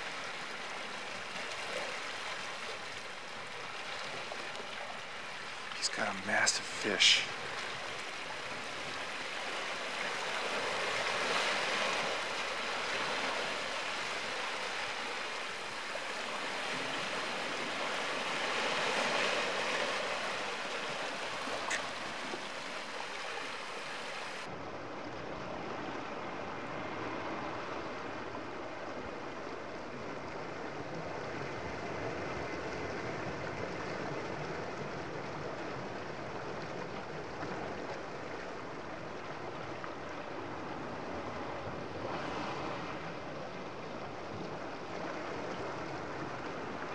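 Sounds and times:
sea water washing against rocks: 0:00.0 - 0:24.5.

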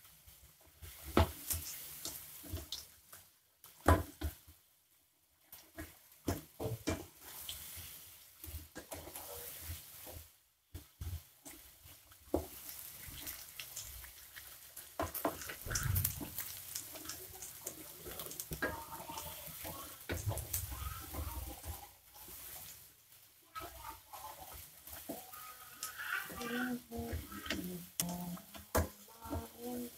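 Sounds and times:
food deep-frying in oil: 0:00.0 - 0:29.9.

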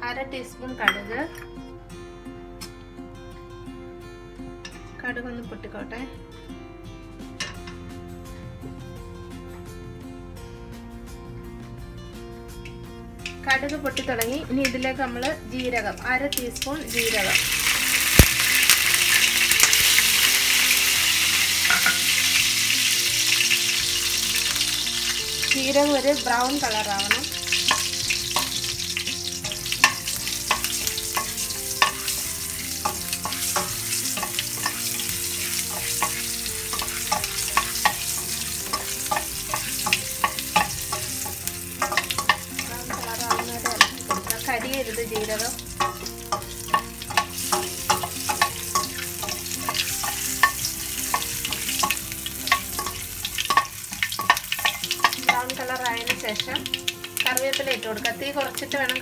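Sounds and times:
seeds sizzling in hot oil: 0:13.2 - 0:59.0
metal spoon scraping pan: 0:17.4 - 0:22.3, 0:23.9 - 0:56.4.

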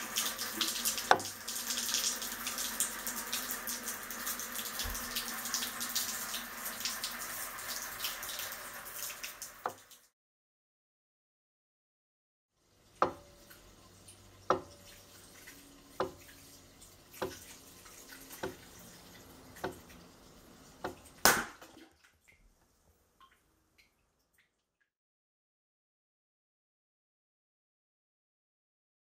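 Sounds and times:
water running into plastic bucket: 0:00.0 - 0:10.1, 0:12.8 - 0:22.4.

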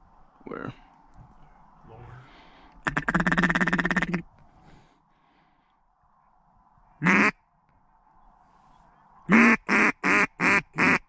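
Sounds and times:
duck call quacks: 0:02.8 - 0:04.3, 0:07.0 - 0:07.4, 0:09.3 - 0:11.0.

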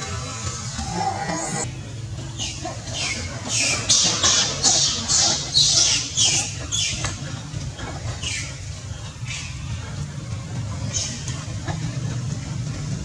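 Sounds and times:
monkey screaming: 0:00.6 - 0:01.7, 0:02.4 - 0:08.6.

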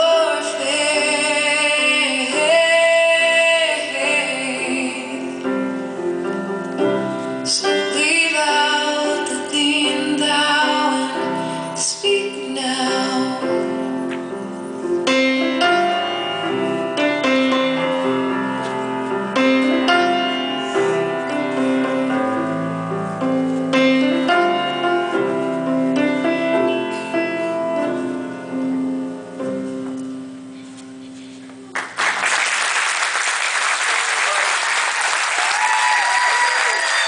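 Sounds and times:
solo piano playing: 0:12.7 - 0:30.5
audience applause: 0:31.7 - 0:37.0.

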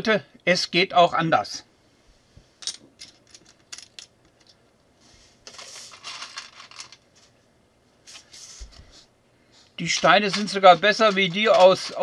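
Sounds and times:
plastic bricks clicking and rattling: 0:10.2 - 0:12.0.

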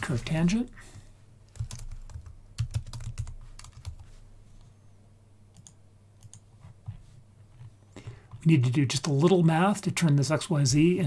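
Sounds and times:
computer keyboard typing: 0:01.5 - 0:04.0, 0:05.5 - 0:06.4.

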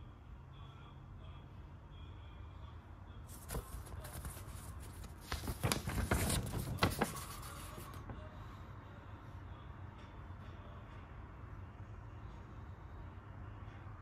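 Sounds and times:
paper rustling and crinkling: 0:03.3 - 0:08.2.

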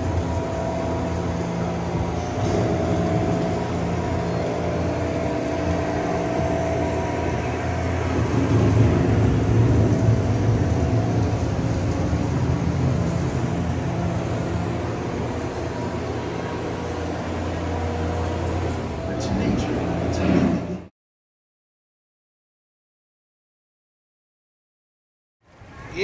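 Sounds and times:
low mechanical hum and rumble: 0:00.0 - 0:20.9.

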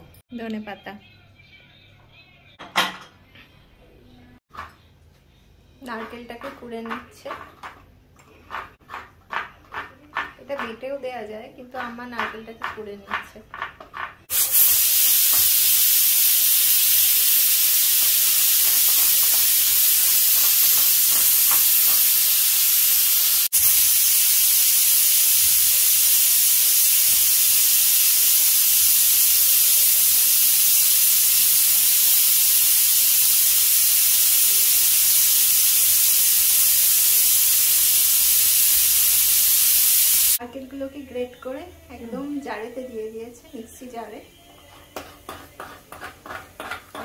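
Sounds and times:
pressure cooker hissing: 0:14.3 - 0:40.4.

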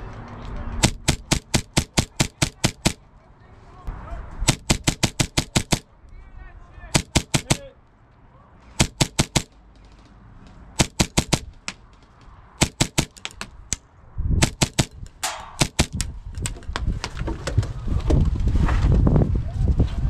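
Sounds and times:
airsoft guns firing: 0:00.8 - 0:03.0, 0:04.5 - 0:05.9, 0:06.9 - 0:07.7, 0:08.8 - 0:09.6, 0:10.8 - 0:12.0, 0:12.6 - 0:13.7, 0:14.4 - 0:16.1.

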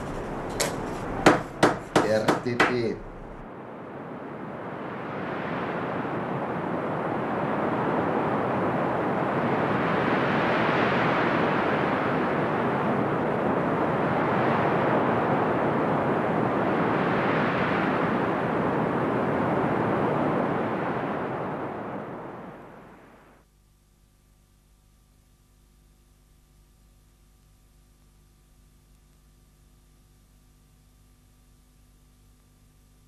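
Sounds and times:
steady rushing noise: 0:00.0 - 0:23.3.

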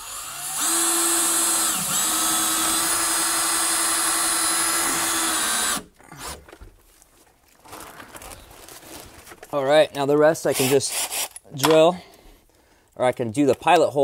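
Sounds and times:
cordless drill running: 0:00.0 - 0:05.9.

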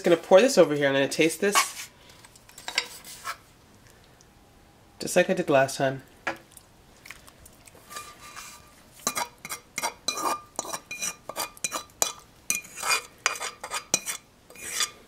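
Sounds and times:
fork clinking and scraping skillet: 0:01.5 - 0:03.4, 0:07.8 - 0:15.0.

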